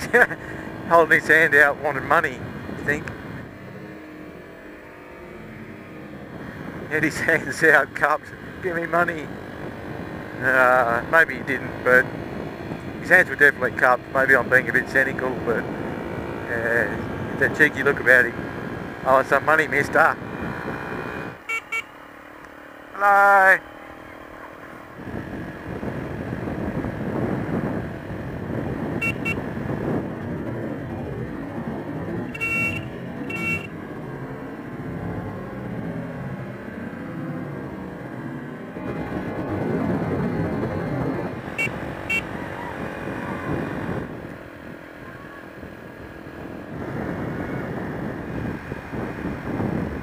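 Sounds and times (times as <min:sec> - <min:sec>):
motorcycle engine and wind rush: 0:00.0 - 0:50.0
horn beeps: 0:21.4 - 0:22.0, 0:28.9 - 0:29.6, 0:32.2 - 0:33.8, 0:41.5 - 0:43.4.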